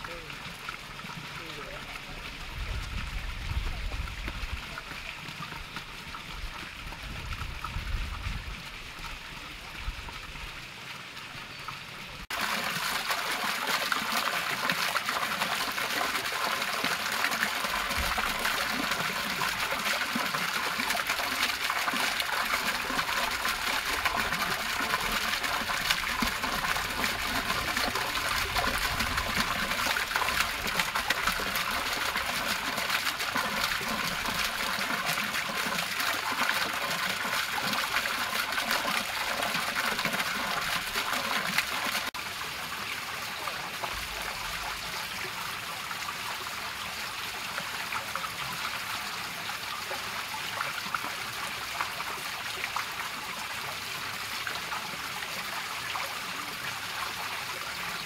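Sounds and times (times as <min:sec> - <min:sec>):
fountain jets burbling: 0:00.0 - 0:58.0
fountain jet splashing into basin: 0:12.3 - 0:53.0.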